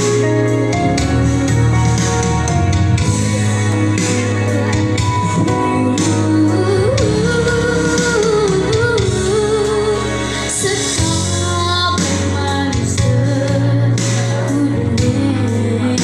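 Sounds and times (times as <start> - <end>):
instrumental accompaniment: 0.0 - 16.0
girl singing into microphone: 5.3 - 16.0.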